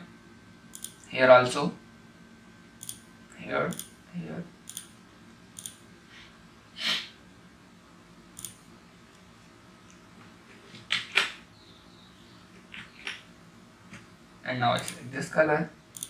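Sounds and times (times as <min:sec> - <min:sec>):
computer mouse clicks: 0:00.7 - 0:01.1, 0:02.8 - 0:03.0, 0:04.7 - 0:04.9, 0:05.6 - 0:05.8, 0:08.4 - 0:08.6, 0:14.8 - 0:15.0.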